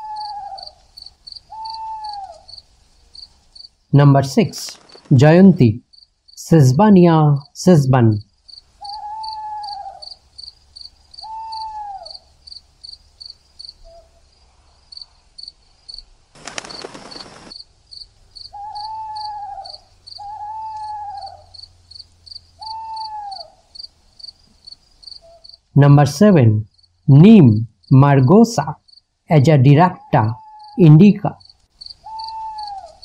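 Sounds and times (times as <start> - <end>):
hooting call: 0.0 - 0.8, 1.4 - 2.6, 8.8 - 10.2, 11.2 - 12.3, 18.5 - 21.8, 22.5 - 23.7, 29.8 - 33.0
crickets chirping: 0.0 - 33.0.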